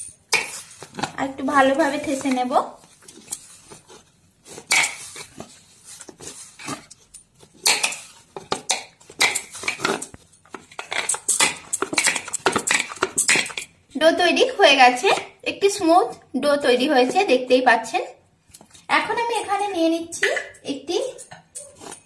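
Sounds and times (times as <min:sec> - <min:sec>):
hands kneading dough: 0:00.0 - 0:13.8.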